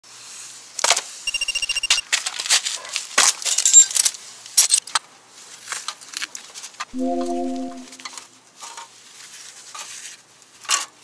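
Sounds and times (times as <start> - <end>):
short ringing tone: 1.3 - 2.0.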